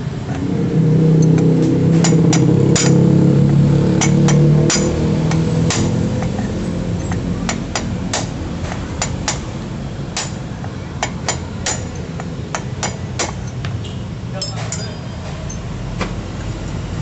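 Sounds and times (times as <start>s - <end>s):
steel rod tapping on metal: 1.4s - 9.5s.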